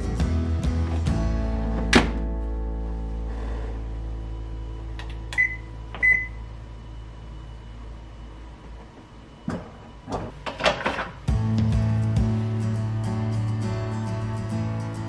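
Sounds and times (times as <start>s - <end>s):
background music: 0.0s - 4.6s, 11.2s - 15.0s
washing machine beeps: 4.4s - 10.4s.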